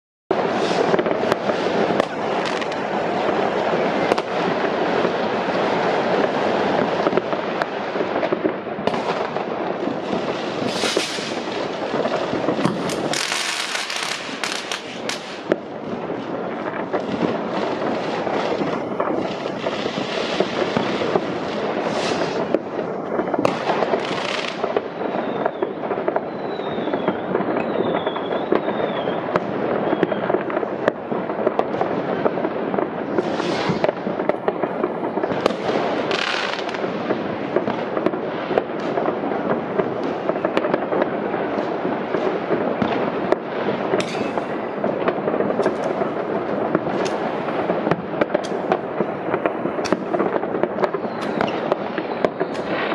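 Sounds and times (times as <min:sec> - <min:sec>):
wavering firework whistle: 0:00.3 - 0:08.4, 0:09.2 - 0:15.6, 0:16.6 - 0:36.9, 0:37.6 - 0:52.9
fireworks bangs and crackling: 0:00.3 - 0:52.9.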